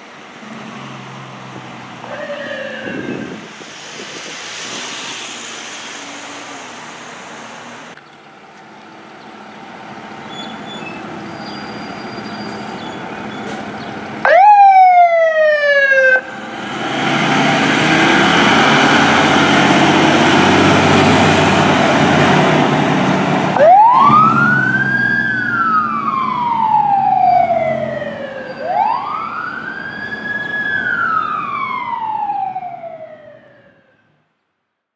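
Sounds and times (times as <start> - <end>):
electronic siren wailing: 2.0 - 3.5, 23.6 - 34.0.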